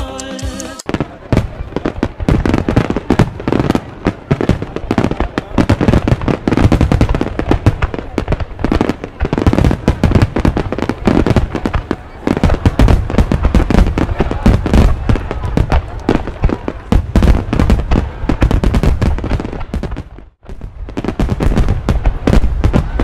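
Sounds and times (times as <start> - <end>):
music: 0.0 - 0.9
fireworks bangs and crackling: 0.6 - 23.0.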